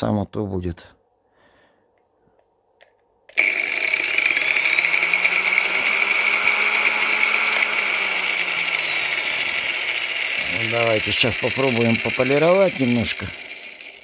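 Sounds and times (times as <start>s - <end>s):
angle grinder motor spinning: 3.3s - 14.0s.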